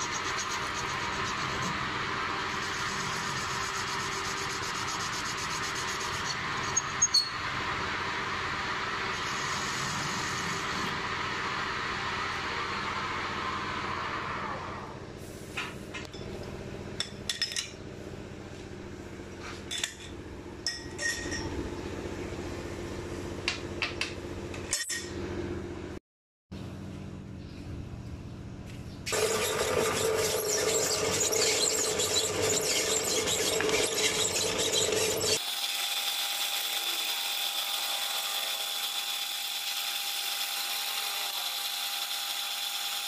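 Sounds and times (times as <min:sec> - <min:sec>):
lathe cutting steel: 0:00.0 - 0:07.4, 0:29.1 - 0:43.0.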